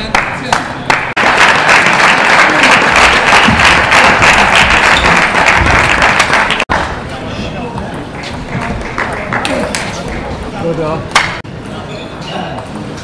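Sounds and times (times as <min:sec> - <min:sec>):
spectators applauding: 0:00.0 - 0:06.9, 0:08.5 - 0:10.2.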